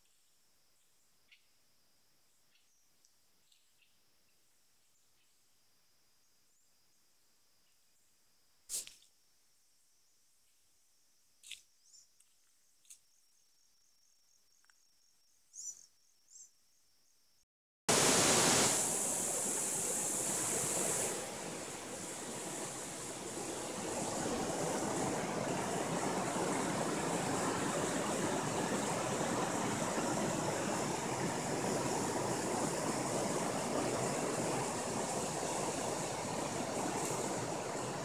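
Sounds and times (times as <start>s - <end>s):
river water rushing over rocks: 17.9s - 38.0s.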